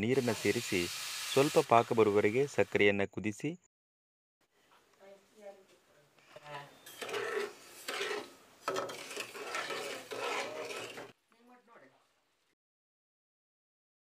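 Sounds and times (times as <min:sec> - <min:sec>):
metal spatula scraping a metal pan: 0:06.8 - 0:11.2.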